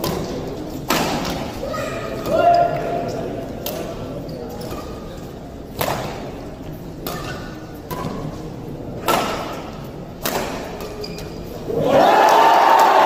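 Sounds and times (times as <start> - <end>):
racquets hitting shuttlecock: 0.0 - 1.6, 5.7 - 6.4, 9.0 - 11.3
crowd cheering and applauding: 11.8 - 13.0.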